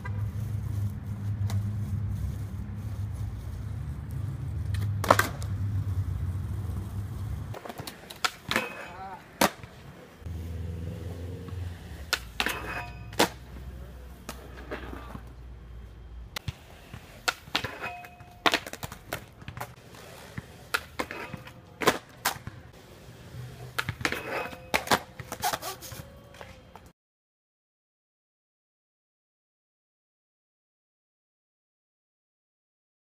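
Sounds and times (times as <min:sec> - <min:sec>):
skateboard wheels rolling on concrete: 0:00.0 - 0:26.9
skateboard clacking on concrete: 0:04.6 - 0:05.6, 0:07.5 - 0:09.9, 0:11.4 - 0:13.5, 0:16.4 - 0:22.5, 0:23.6 - 0:26.9.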